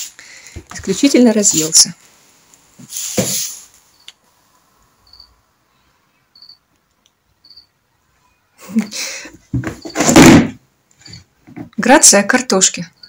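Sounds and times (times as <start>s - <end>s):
plastic box scraping on floor: 2.8s - 3.7s, 9.5s - 10.6s.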